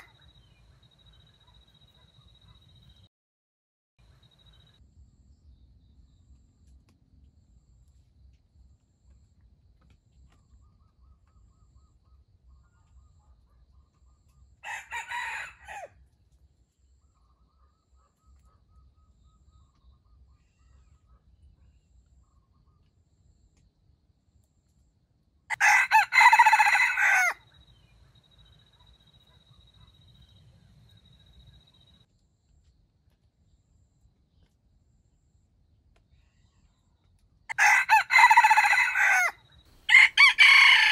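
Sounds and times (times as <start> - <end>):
rooster crowing: 14.6 - 15.9, 25.5 - 27.4, 37.5 - 40.9.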